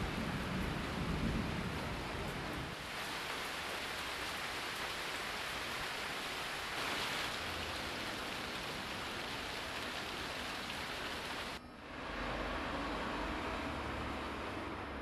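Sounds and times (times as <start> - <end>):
steady rain falling: 0.0 - 11.6
water dripping from eaves: 0.0 - 11.6.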